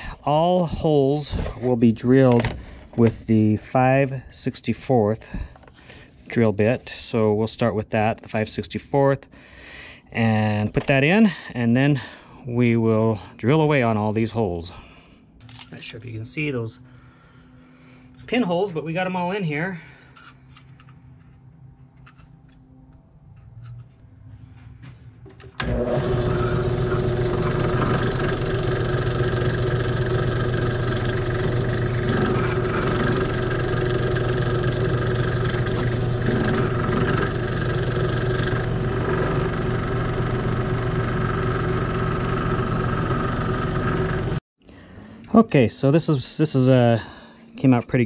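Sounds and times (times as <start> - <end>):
drill press motor humming: 25.5 - 44.4.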